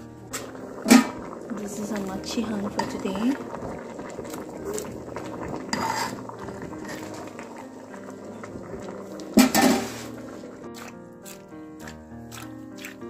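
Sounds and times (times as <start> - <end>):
stew simmering: 0.0 - 13.0
metal ladle scraping a pot: 0.3 - 1.3, 2.7 - 3.1, 4.8 - 7.4, 9.4 - 10.6
ladle clinking against pot: 9.4 - 9.9.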